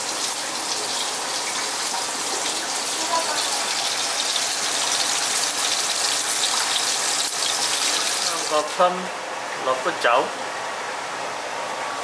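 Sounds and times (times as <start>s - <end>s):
kitchen tap running: 0.0s - 10.0s.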